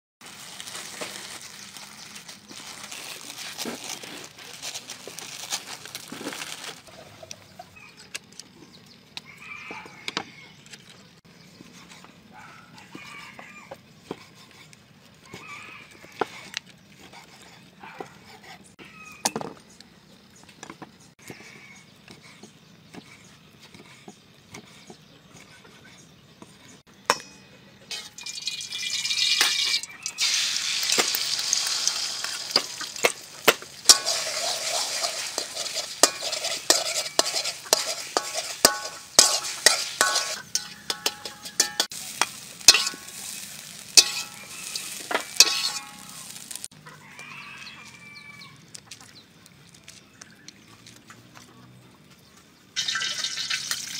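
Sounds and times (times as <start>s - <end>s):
hot pan sizzling: 0.2s - 3.1s, 27.9s - 46.7s, 52.8s - 53.9s
metal spatula scraping pan: 27.2s - 28.4s, 29.0s - 46.7s.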